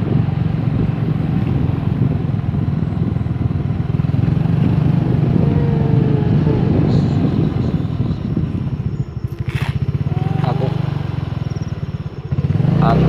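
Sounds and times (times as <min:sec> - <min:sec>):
wind noise: 0:00.0 - 0:12.8
motorcycle engine rumble: 0:00.0 - 0:13.0
road noise: 0:00.0 - 0:13.0.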